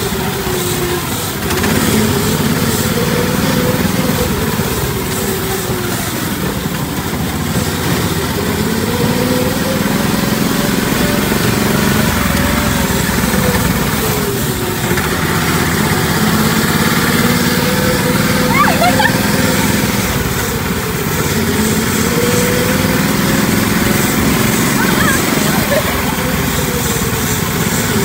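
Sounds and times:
small buggy engine running: 0:00.0 - 0:28.0.

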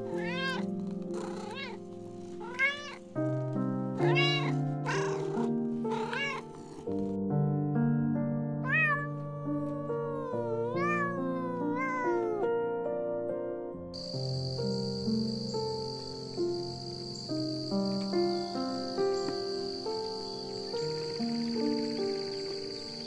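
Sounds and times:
cat meowing: 0:00.0 - 0:03.4, 0:04.0 - 0:07.2, 0:08.6 - 0:12.5
soft background music: 0:00.0 - 0:23.0.

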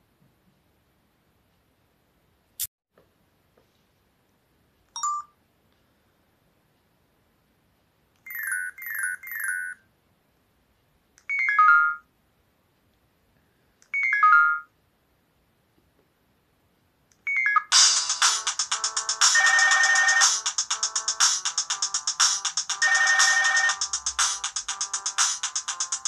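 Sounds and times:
phone ringtone melody: 0:08.3 - 0:09.8, 0:17.7 - 0:26.0
descending phone melody snippets: 0:18.5 - 0:21.2, 0:22.0 - 0:26.0.

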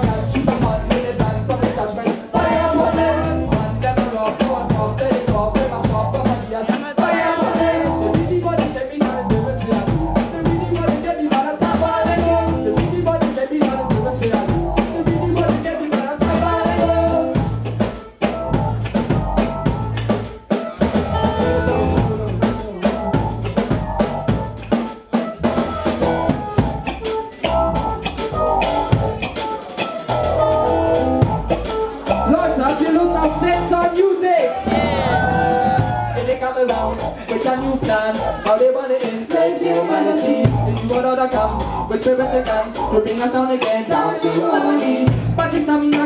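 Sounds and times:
drum rimshots: 0:00.0 - 0:35.0, 0:45.1 - 0:46.0
live band playing: 0:00.0 - 0:46.0.

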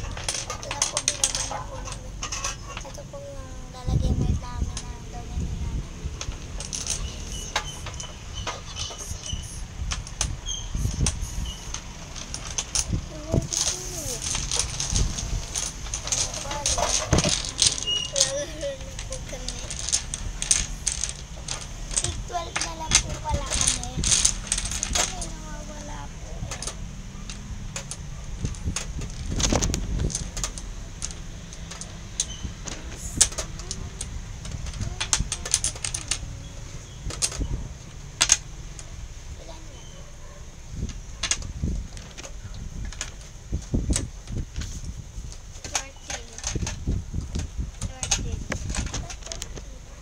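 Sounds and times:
domino tiles clacking: 0:00.0 - 0:39.9, 0:40.8 - 0:49.8.

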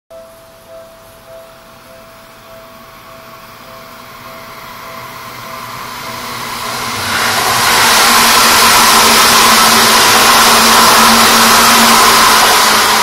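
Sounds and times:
two-tone crossing bell ringing: 0:00.1 - 0:07.0
train rushing past: 0:02.2 - 0:13.0.

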